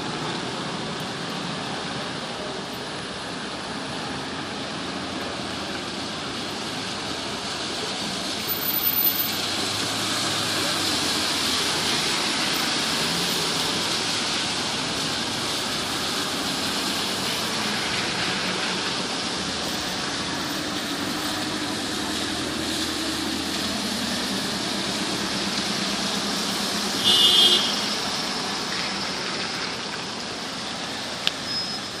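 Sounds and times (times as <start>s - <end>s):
tyres hissing on wet road: 0.0s - 32.0s.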